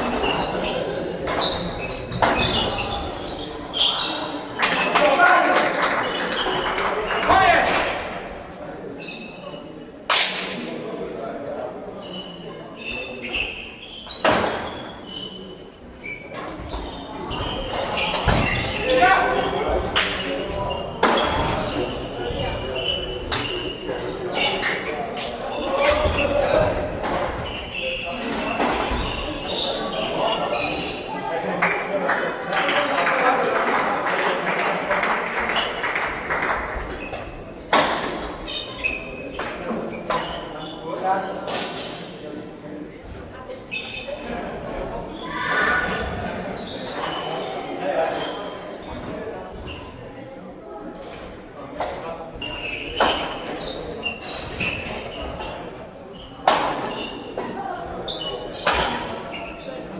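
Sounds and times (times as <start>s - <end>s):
sports shoes squeaking on floor: 0.0s - 7.7s, 8.9s - 9.8s, 12.0s - 31.2s, 36.8s - 41.1s, 43.4s - 44.4s, 45.0s - 50.0s, 51.8s - 59.9s
murmur of spectators: 0.0s - 59.9s.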